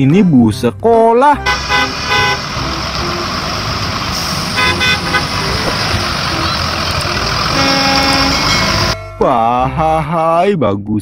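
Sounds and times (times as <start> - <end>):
bus engine: 0.0 - 10.4
tyre hiss on wet road: 2.3 - 6.3.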